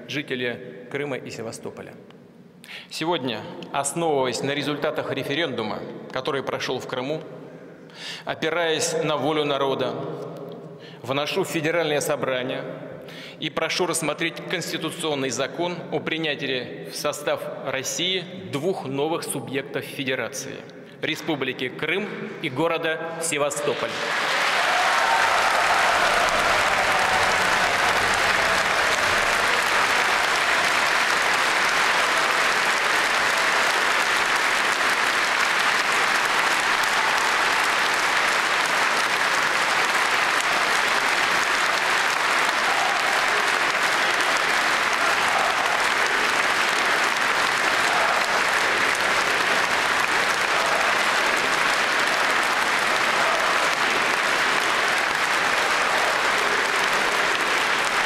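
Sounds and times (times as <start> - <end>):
audience applauding: 23.7 - 58.0.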